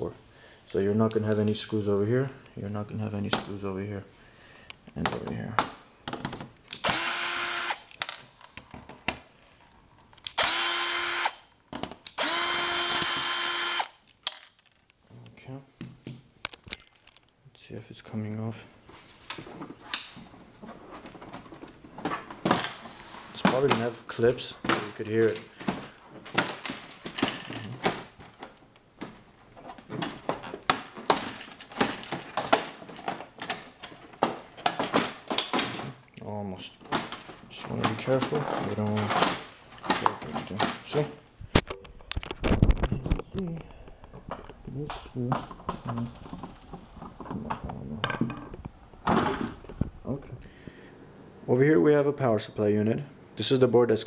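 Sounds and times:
plastic clips snapping loose: 0:06.1 - 0:06.8
power drill backing out screws: 0:12.1 - 0:13.9.

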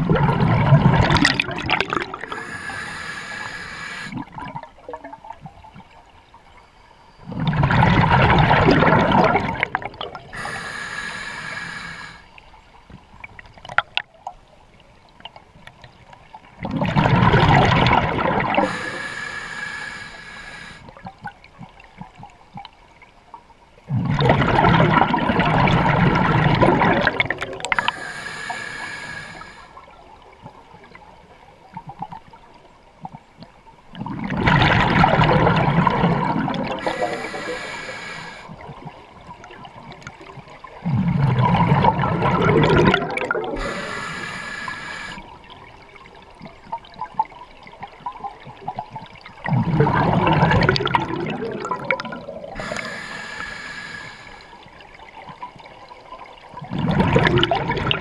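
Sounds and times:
regulator hiss on inhale: 0:02.3 - 0:04.2, 0:10.3 - 0:12.4, 0:18.6 - 0:21.0, 0:27.7 - 0:29.9, 0:36.7 - 0:38.6, 0:43.6 - 0:45.4, 0:52.5 - 0:54.7
rush of exhaust bubbles: 0:16.6 - 0:19.4, 0:23.9 - 0:29.6, 0:34.0 - 0:38.4, 0:40.8 - 0:45.2, 0:49.4 - 0:54.5, 0:56.6 - 0:58.0.

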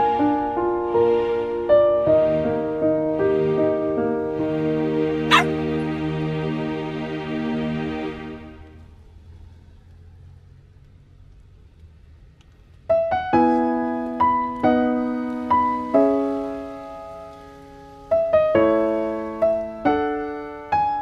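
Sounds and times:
gentle piano music: 0:00.0 - 0:06.8, 0:12.8 - 0:21.0.

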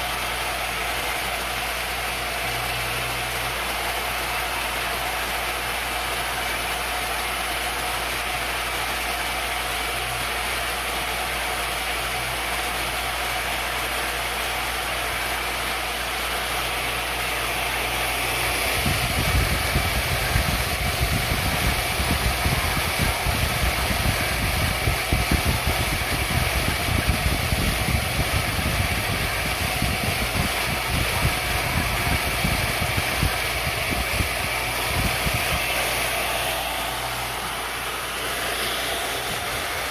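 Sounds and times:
milling machine motor whine: 0:00.0 - 0:39.9
end mill cutting wood: 0:28.4 - 0:39.9.

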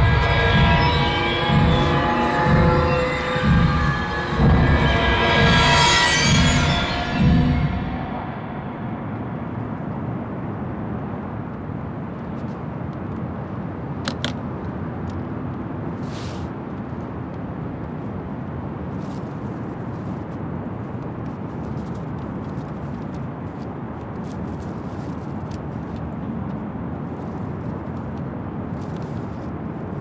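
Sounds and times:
distant traffic rumble: 0:00.0 - 0:30.0
briefcase scrape: 0:16.0 - 0:16.5.

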